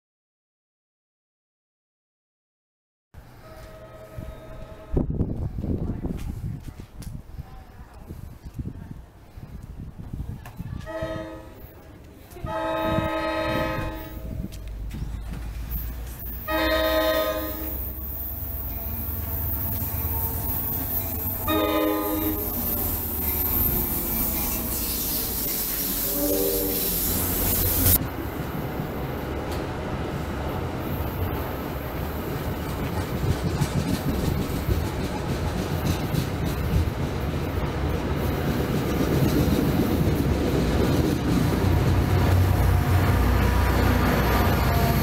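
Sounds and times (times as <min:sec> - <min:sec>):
diesel locomotive engine rumbling: 0:03.2 - 0:45.0
train horn blasts: 0:03.4 - 0:05.2, 0:10.8 - 0:11.7, 0:12.4 - 0:14.4, 0:16.4 - 0:28.0.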